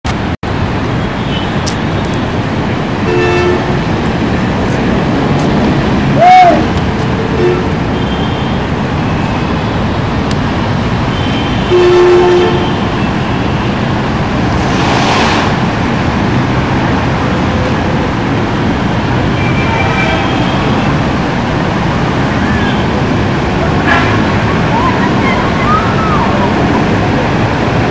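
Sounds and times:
city traffic noise: 0:00.0 - 0:27.9
vehicle horn tooting: 0:03.0 - 0:03.8, 0:07.2 - 0:08.7, 0:11.1 - 0:13.7
brief rushing swell: 0:14.7 - 0:15.7.

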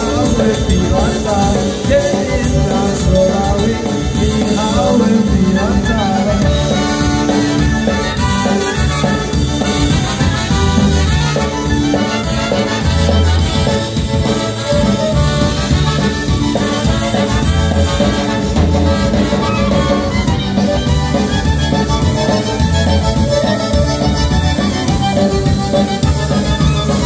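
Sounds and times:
polka band playing: 0:00.0 - 0:27.0.

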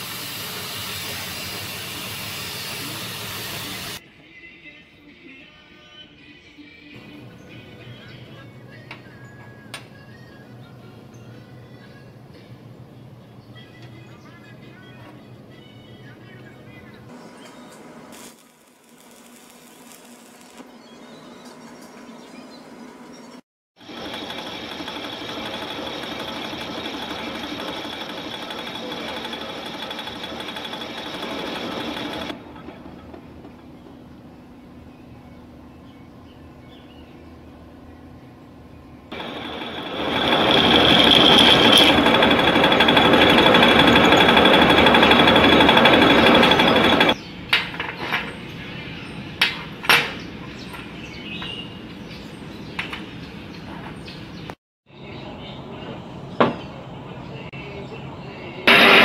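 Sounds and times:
metal lathe running: 0:00.0 - 0:04.0, 0:23.8 - 0:33.1, 0:39.1 - 0:47.2, 0:58.7 - 0:59.0.

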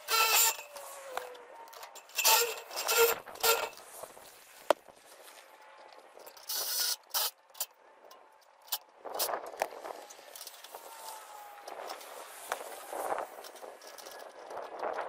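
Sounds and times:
metal liner scraping and rustling: 0:00.0 - 0:07.4.

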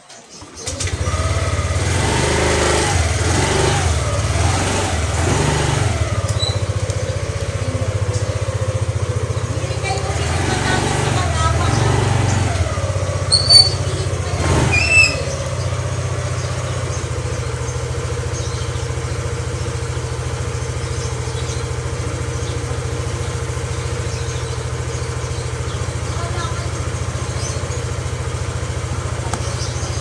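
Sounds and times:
motorcycle engine idling: 0:00.2 - 0:30.0
short high-pitched squeaks: 0:13.2 - 0:15.7.

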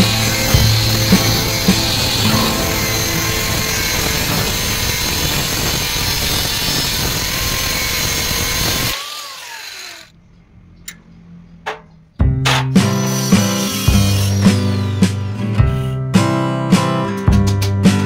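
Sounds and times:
motor winding down whine: 0:00.0 - 0:10.1, 0:13.0 - 0:15.5
angle grinder grinding steel: 0:00.0 - 0:10.2, 0:12.8 - 0:16.0.

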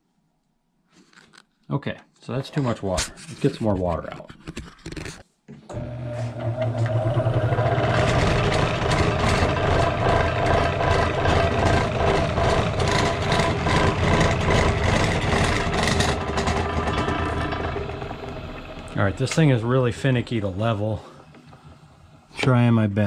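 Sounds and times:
electric motor hum: 0:05.7 - 0:23.0
wheels spinning through water: 0:05.8 - 0:22.8.

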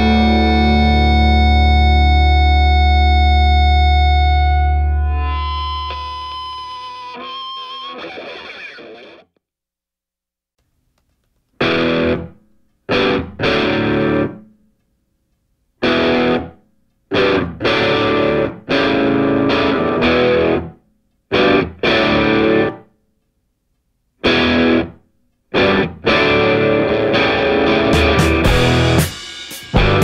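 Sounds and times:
rock music with distorted guitar: 0:00.0 - 0:09.3, 0:11.6 - 0:14.4, 0:15.8 - 0:16.5, 0:17.1 - 0:20.7, 0:21.3 - 0:22.8, 0:24.2 - 0:30.0.

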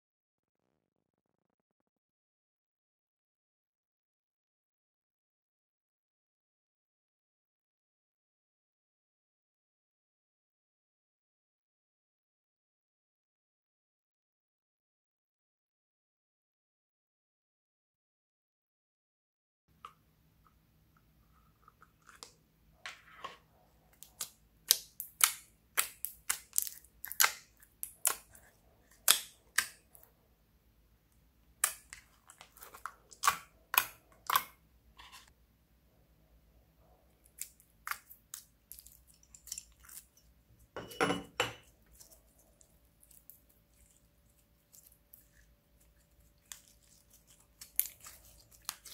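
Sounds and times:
slime squelch: 0:20.4 - 0:30.3, 0:31.5 - 0:35.3, 0:36.5 - 0:40.8, 0:41.6 - 0:48.9
slime popping and crackling: 0:24.0 - 0:28.4, 0:46.4 - 0:48.9.

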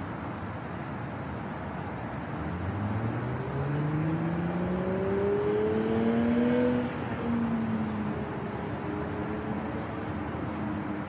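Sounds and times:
city noise: 0:00.0 - 0:11.0
car engine accelerating: 0:02.3 - 0:08.5.

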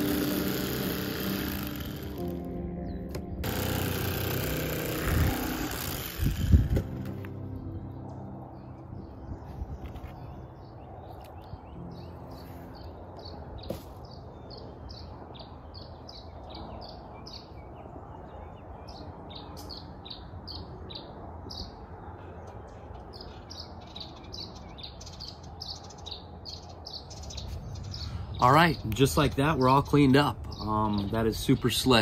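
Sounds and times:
electric fillet knife humming: 0:00.0 - 0:02.4, 0:03.4 - 0:07.2
birds chirping: 0:07.3 - 0:32.0.

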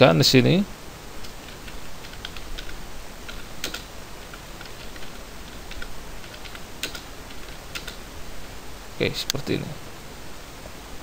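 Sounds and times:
typing on computer keyboard: 0:01.4 - 0:08.0.

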